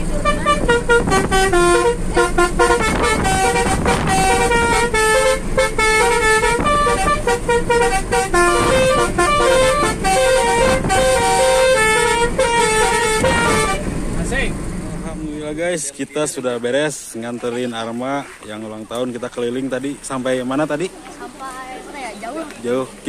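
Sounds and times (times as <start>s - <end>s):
musical air horns playing melody: 0.0s - 14.0s
low hum of moving car: 0.0s - 23.0s.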